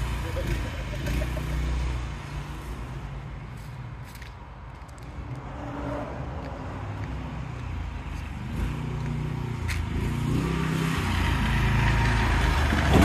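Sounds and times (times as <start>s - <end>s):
go-kart engine revving: 0.0s - 2.9s, 8.5s - 13.0s.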